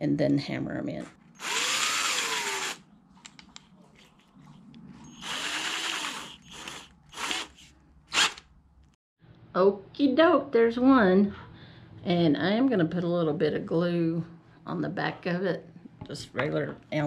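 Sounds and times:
cordless drill whirring: 1.4 - 2.8, 5.0 - 8.5.

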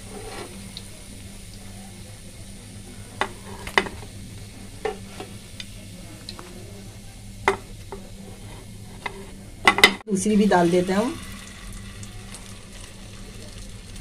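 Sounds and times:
hot oil sizzling faintly: 0.0 - 14.0.

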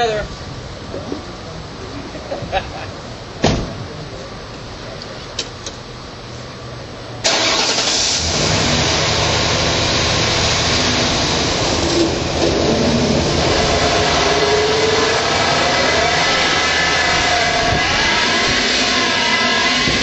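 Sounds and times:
race engine starting and running: 7.2 - 20.0.

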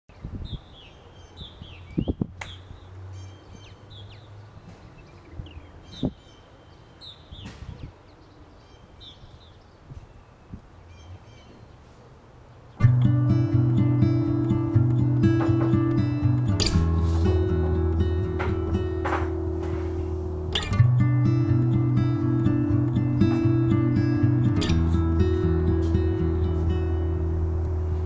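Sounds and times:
birds chirping: 0.1 - 28.0
faint low hum: 12.8 - 28.0
dull knocks: 14.7 - 20.9.

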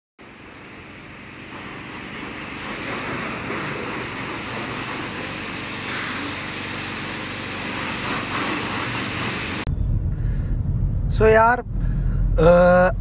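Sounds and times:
pressure washer spray hissing: 0.2 - 9.7.

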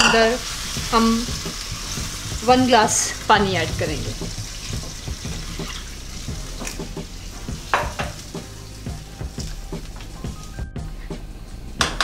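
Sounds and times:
light sizzle: 0.0 - 12.0
spoon scraping and knocking a pan: 4.6 - 8.5.

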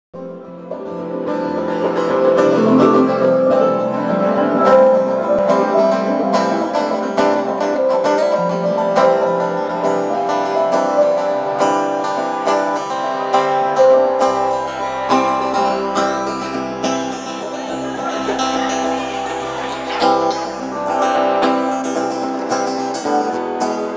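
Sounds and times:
acoustic guitar picking: 0.2 - 23.9
low bass line: 1.4 - 8.0.

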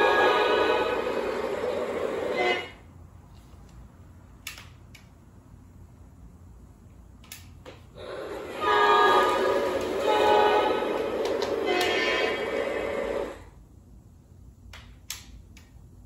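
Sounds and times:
model train horn blast: 0.0 - 2.9, 8.0 - 13.4.

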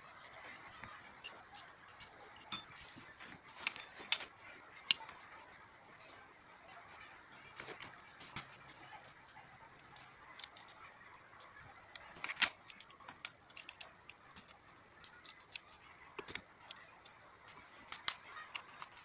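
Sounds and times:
hex key clicking on screws: 1.2 - 3.3.

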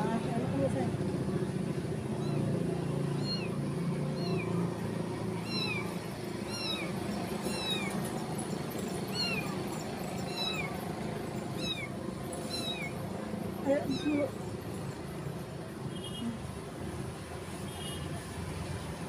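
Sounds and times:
kittens mewing: 2.0 - 8.0, 9.0 - 9.6, 10.2 - 14.4.

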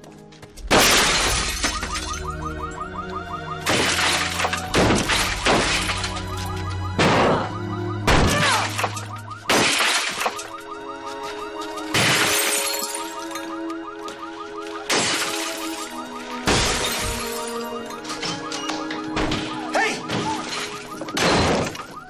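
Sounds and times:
car window glass shattering: 0.7 - 2.2, 3.6 - 7.3, 8.1 - 10.5, 11.9 - 13.4, 14.8 - 22.0.

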